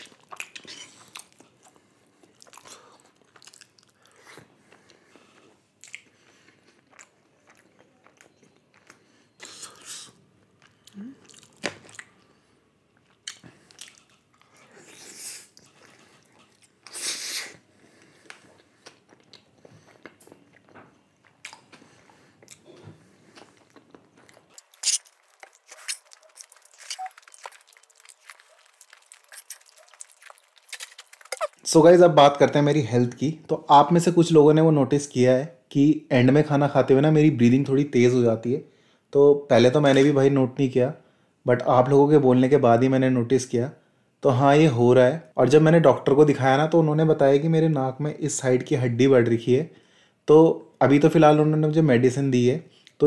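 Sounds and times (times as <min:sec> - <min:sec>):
person biting and chewing food: 0:00.0 - 0:04.5, 0:13.0 - 0:31.7
mouth clicks: 0:29.2 - 0:31.6.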